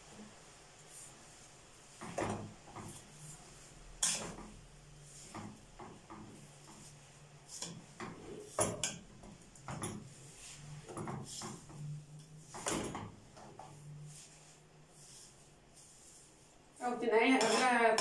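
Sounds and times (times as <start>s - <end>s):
metal spoon scraping a pot: 4.0s - 4.5s, 17.3s - 18.0s.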